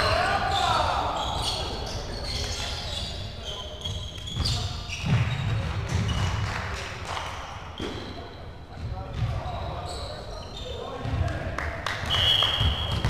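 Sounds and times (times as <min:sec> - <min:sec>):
shoes squeaking on floor: 0:00.0 - 0:06.4, 0:07.8 - 0:11.1
volleyball bouncing on hard floor: 0:12.5 - 0:13.0.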